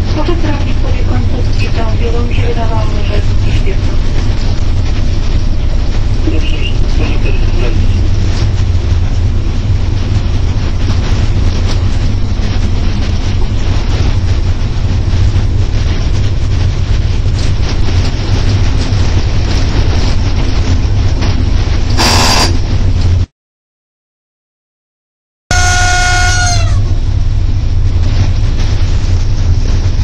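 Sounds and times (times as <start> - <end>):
wheels rumbling on rail: 0.0 - 23.3, 25.5 - 30.0
wind rush: 0.0 - 23.3, 26.7 - 30.0
train horn blast: 22.0 - 22.7, 25.5 - 27.0.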